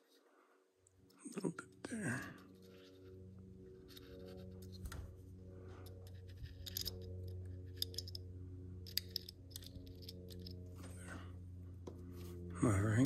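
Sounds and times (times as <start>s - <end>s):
low hum: 0.0s - 13.0s
small metal clicks and ticks: 5.8s - 10.6s.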